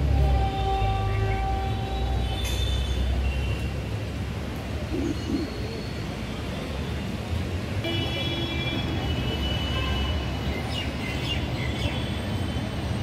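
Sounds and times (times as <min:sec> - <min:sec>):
low rumble of road traffic: 0:00.0 - 0:13.0
vehicle horn toot: 0:00.2 - 0:02.8.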